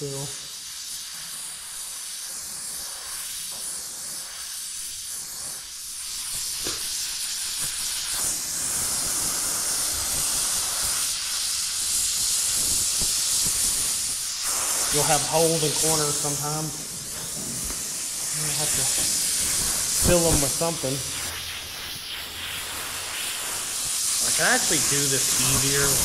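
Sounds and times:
gas torch flame hissing: 0:00.0 - 0:26.0.

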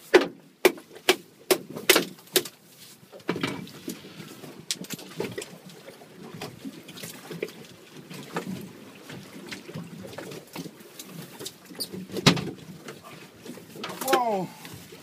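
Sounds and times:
waves lapping against boat hull: 0:00.0 - 0:15.0.

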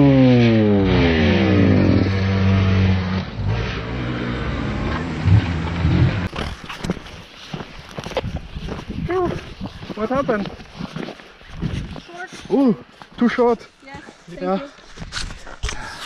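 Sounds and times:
motocross bike engine: 0:00.0 - 0:07.0.

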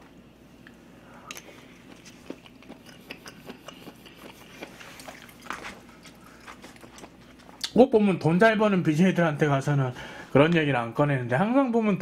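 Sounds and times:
chewing and biting food: 0:01.3 - 0:07.8.

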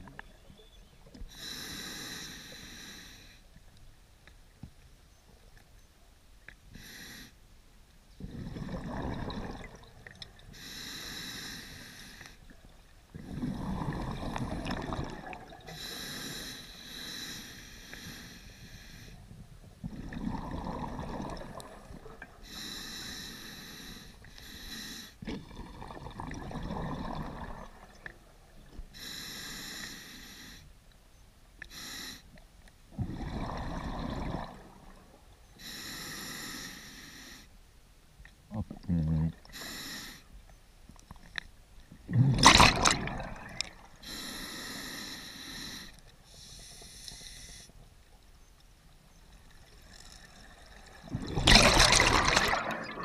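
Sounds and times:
exhaled bubbles rumbling: 0:08.2 - 0:10.4, 0:13.1 - 0:15.8, 0:19.3 - 0:22.4, 0:25.2 - 0:28.4, 0:32.9 - 0:35.1, 0:42.0 - 0:44.0, 0:49.8 - 0:53.0
regulator hissing inhalations: 0:10.5 - 0:12.4, 0:28.9 - 0:30.7, 0:31.7 - 0:32.3, 0:35.6 - 0:37.5, 0:39.5 - 0:40.3, 0:44.0 - 0:47.8.

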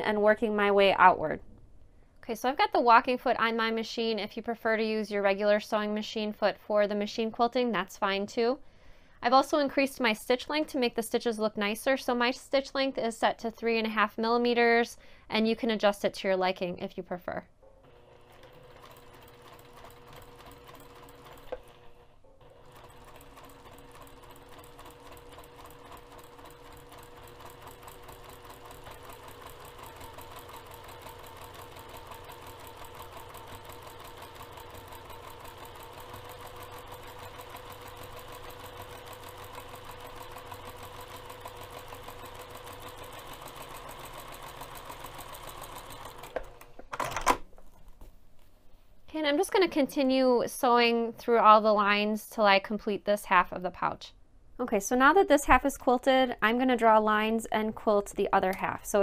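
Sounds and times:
sewing machine stitching: 0:17.8 - 0:47.4.

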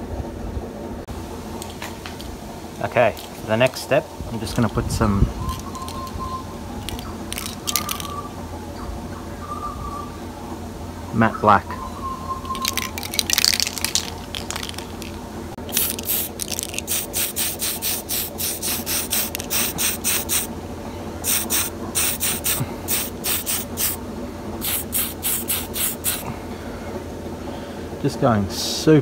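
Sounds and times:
aerosol spray bursts: 0:15.7 - 0:20.5, 0:21.2 - 0:24.0, 0:24.6 - 0:26.2.

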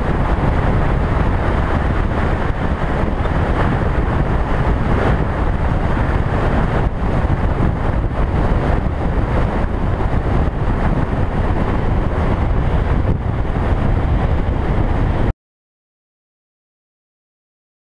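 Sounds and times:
road noise rumble: 0:00.0 - 0:15.3
wind buffeting microphone: 0:00.0 - 0:15.3.

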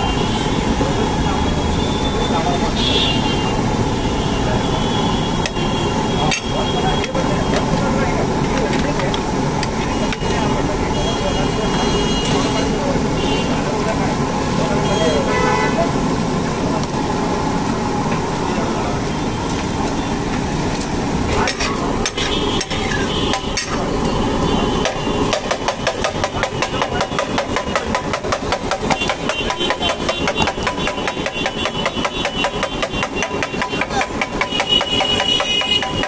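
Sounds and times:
street noise: 0:00.0 - 0:36.0
metal spatula striking a griddle: 0:06.3 - 0:07.2, 0:21.4 - 0:23.8, 0:24.8 - 0:36.0.

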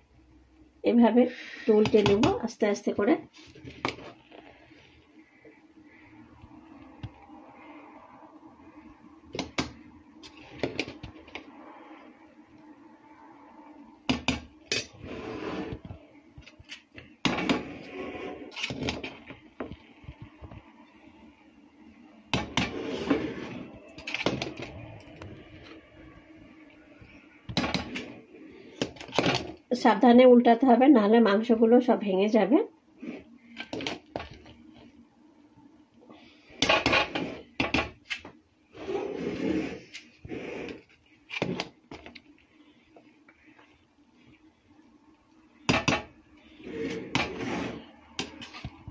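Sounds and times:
spoon scraping through rice: 0:46.5 - 0:48.7.

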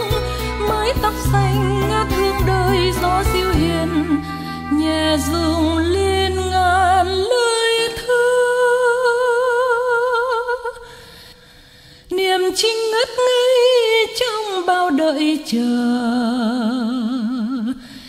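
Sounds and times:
soft musical accompaniment: 0:00.0 - 0:09.0.

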